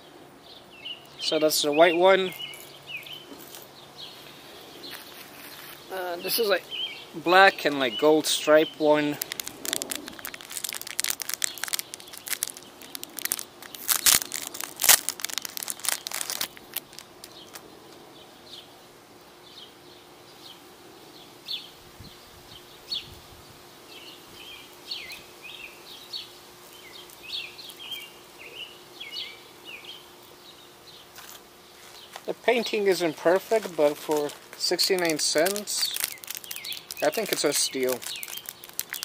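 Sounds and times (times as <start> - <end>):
birds chirping: 0.0 - 39.0
plastic packet crinkling: 8.4 - 17.6, 32.2 - 39.0.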